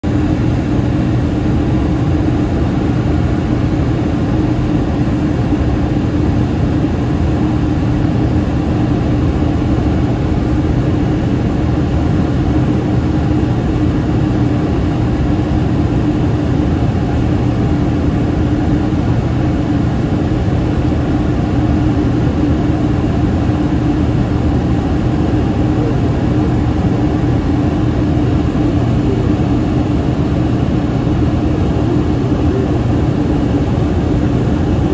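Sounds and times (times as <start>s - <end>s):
constant humming tone: 0.0s - 34.9s
jet engines droning: 0.0s - 34.9s
airflow: 8.6s - 34.9s.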